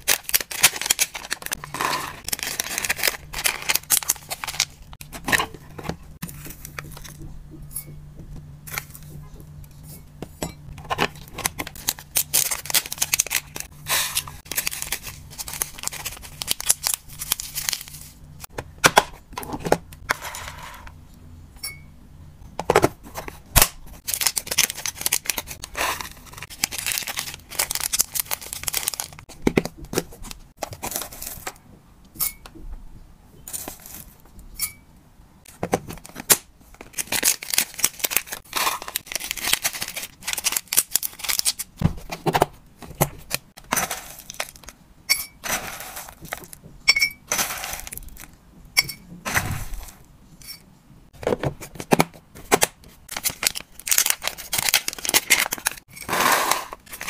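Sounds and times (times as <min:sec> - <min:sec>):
plastic bags crinkling: 0:00.0 - 0:07.1, 0:11.0 - 0:18.2, 0:24.0 - 0:29.3, 0:35.8 - 0:41.8, 0:43.2 - 0:44.8, 0:45.4 - 0:46.6, 0:47.3 - 0:48.4, 0:53.0 - 0:57.0.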